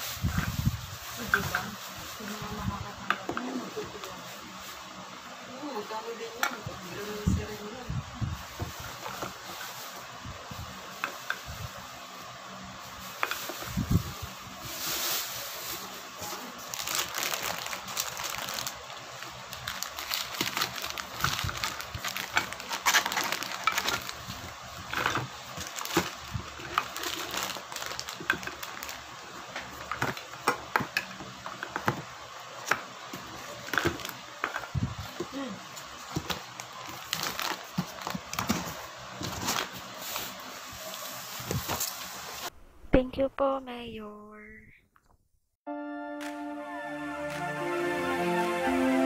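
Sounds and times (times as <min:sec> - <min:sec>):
rustling: 0:12.9 - 0:18.8.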